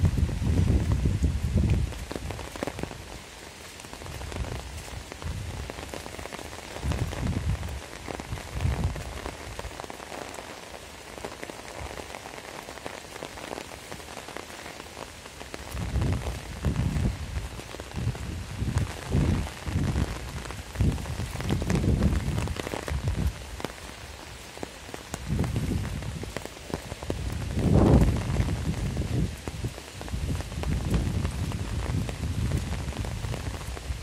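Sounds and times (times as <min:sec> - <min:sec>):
heavy rain: 0:00.0 - 0:34.0
wind rumbling on microphone: 0:00.0 - 0:34.0.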